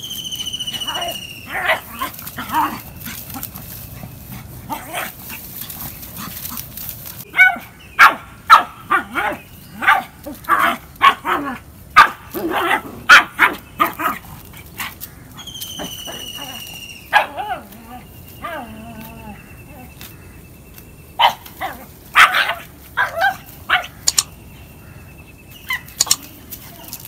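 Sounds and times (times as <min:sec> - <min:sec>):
dog barking: 0:07.3 - 0:13.6, 0:17.1 - 0:17.4, 0:21.2 - 0:24.0.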